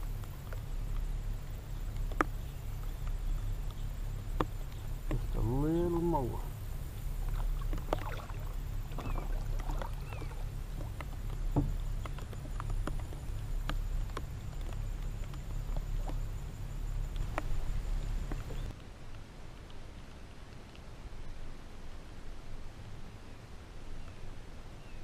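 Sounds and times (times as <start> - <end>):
small boat motor humming: 0.0 - 18.8
rain pattering: 0.0 - 24.7.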